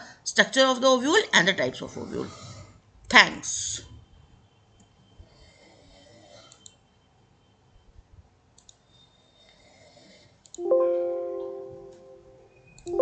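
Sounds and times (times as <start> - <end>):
computer mouse clicks: 6.4 - 6.8, 8.6 - 8.8, 10.4 - 10.6, 12.8 - 13.0.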